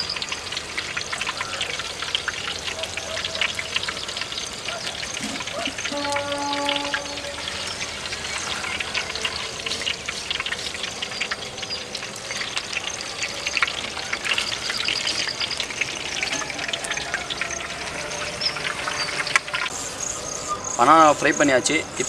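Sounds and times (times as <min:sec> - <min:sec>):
hot oil sizzling and crackling: 0:00.0 - 0:22.0.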